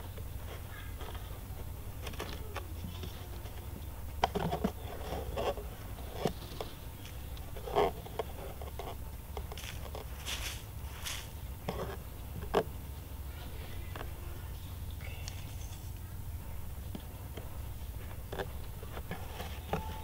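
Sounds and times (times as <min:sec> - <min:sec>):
plastic bottle scraping: 0:02.0 - 0:12.7, 0:18.1 - 0:20.0.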